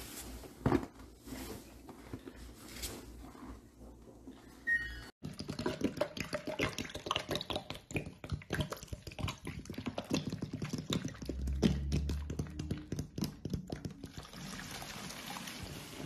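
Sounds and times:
liquid pouring: 0:14.0 - 0:16.0.

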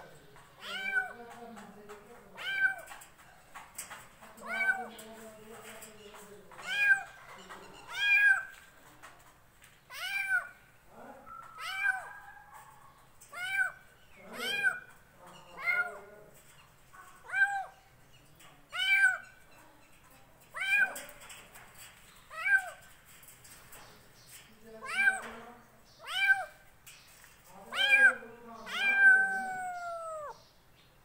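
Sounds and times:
kitten meowing: 0:09.9 - 0:10.5, 0:27.7 - 0:30.4.

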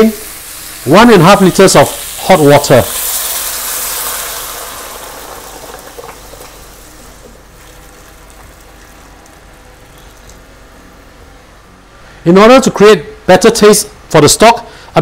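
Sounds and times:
water hissing in hot wok: 0:00.0 - 0:10.4.

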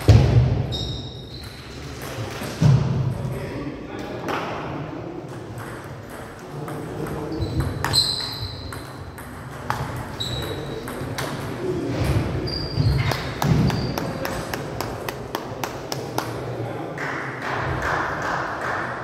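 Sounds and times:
shoes squeaking on floor: 0:00.7 - 0:01.8, 0:07.3 - 0:09.0, 0:10.0 - 0:11.0, 0:12.1 - 0:14.4.

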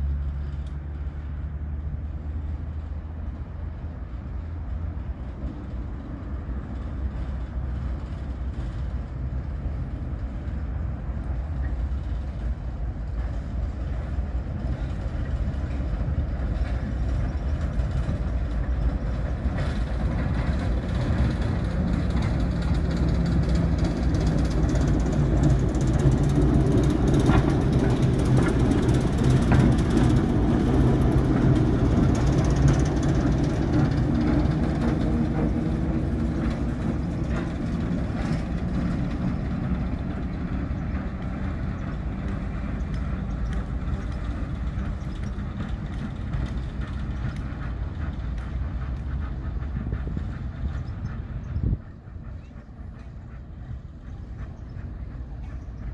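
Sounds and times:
diesel locomotive engine running: 0:00.0 - 0:55.9
wheel clicks on rails: 0:14.6 - 0:51.2.

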